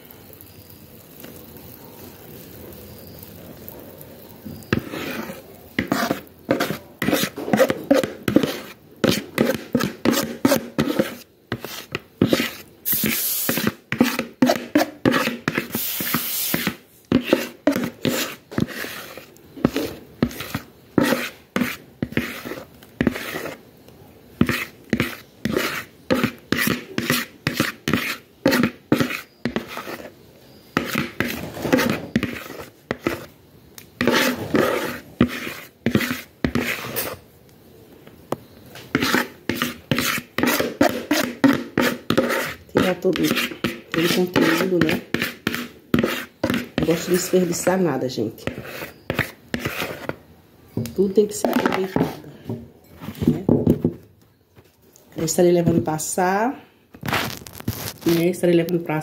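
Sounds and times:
utensil scraping plastic bowl: 4.7 - 23.6, 24.4 - 33.4, 34.0 - 37.2, 38.8 - 50.2, 51.0 - 52.3.

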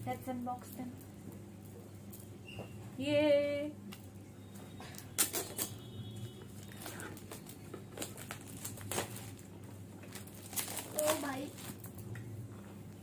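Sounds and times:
plastic wrap crinkling: 4.8 - 12.1
knife slitting shrink-wrap: 8.0 - 9.4, 10.2 - 11.9.

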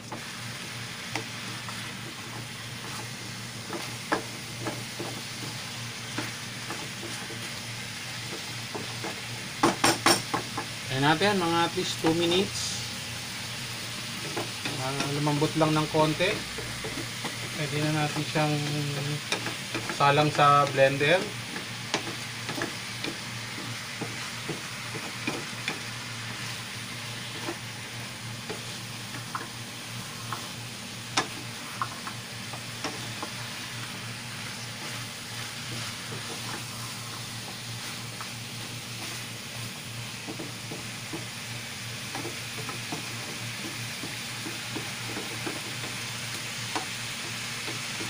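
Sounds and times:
food sizzling in a frying pan: 0.0 - 48.0
spatula knocking and scraping pan: 1.1 - 7.5, 16.3 - 26.5, 40.2 - 41.4, 42.0 - 46.1.

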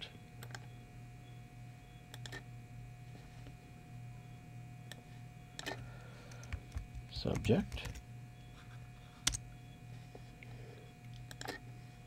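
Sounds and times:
low steady hum: 0.0 - 12.0
computer mouse clicks: 2.1 - 2.4, 9.2 - 9.4, 11.1 - 11.6.

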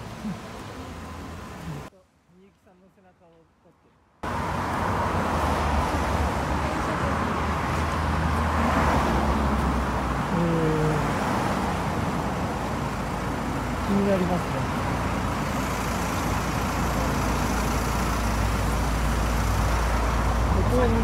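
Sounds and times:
city street traffic: 0.0 - 21.0
low vehicle engine rumble: 4.2 - 21.0.

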